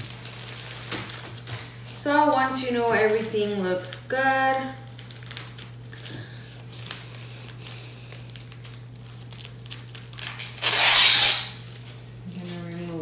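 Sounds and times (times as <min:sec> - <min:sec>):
plastic bag crinkling: 0:00.0 - 0:13.0
plastic bag tearing rip: 0:04.8 - 0:05.8, 0:08.2 - 0:11.9.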